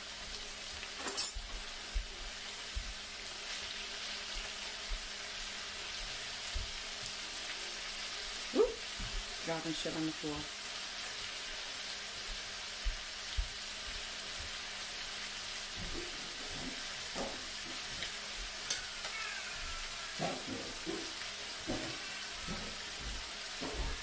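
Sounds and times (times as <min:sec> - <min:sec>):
meat sizzling in a frying pan: 0:00.0 - 0:24.0
faint knocks: 0:20.2 - 0:24.0.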